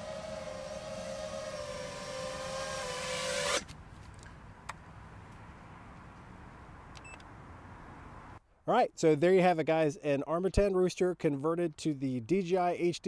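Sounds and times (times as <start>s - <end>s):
quadcopter motors whining: 0.0s - 3.7s.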